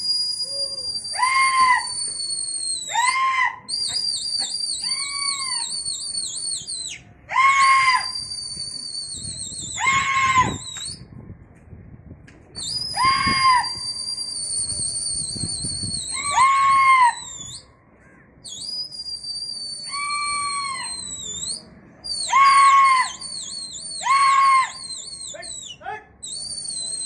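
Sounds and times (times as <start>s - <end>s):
long high whistles: 0.0s - 11.1s, 12.6s - 17.8s, 18.4s - 27.0s
person crying out shrilly: 9.8s - 10.6s, 13.0s - 13.8s.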